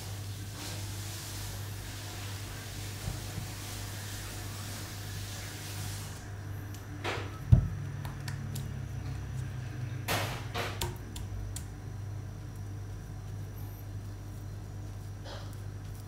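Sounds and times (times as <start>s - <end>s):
steady low hum: 6.1s - 16.0s.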